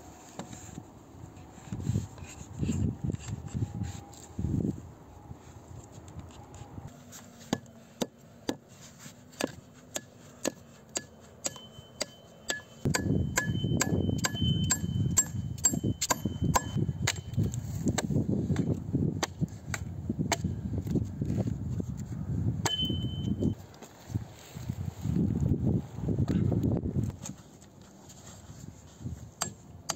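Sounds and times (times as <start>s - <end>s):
wind rumble on microphone: 0.5s - 6.9s, 12.8s - 29.9s
axe hammering nail into wood: 9.4s - 17.3s.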